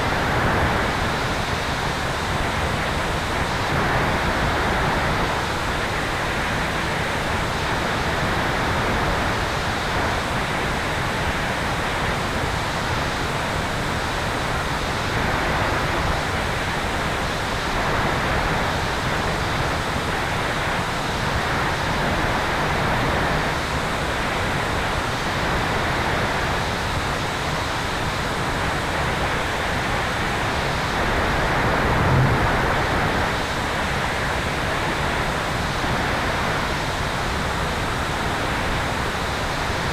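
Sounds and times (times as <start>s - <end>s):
rushing airflow noise: 26.6s - 39.9s
low bump: 31.8s - 33.3s.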